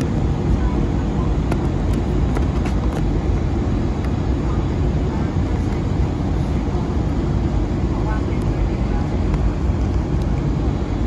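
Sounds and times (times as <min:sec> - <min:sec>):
aircraft cabin drone: 0:00.0 - 0:11.0.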